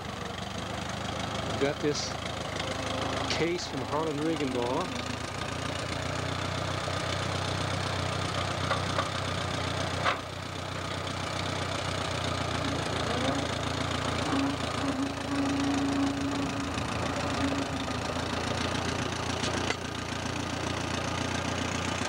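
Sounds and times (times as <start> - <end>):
tractor engine idling: 0.0 - 22.0
steady higher tone: 14.2 - 17.9.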